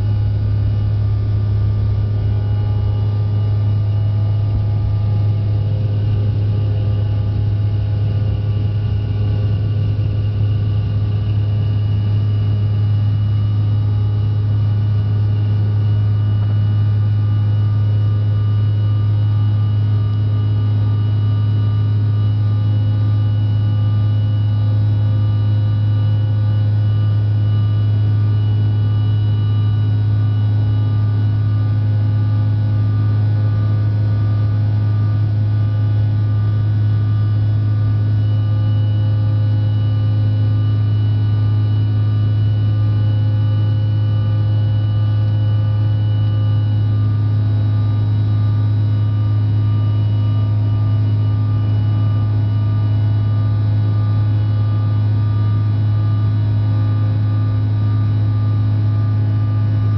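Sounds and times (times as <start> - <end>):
jet engines droning: 0.0 - 17.0.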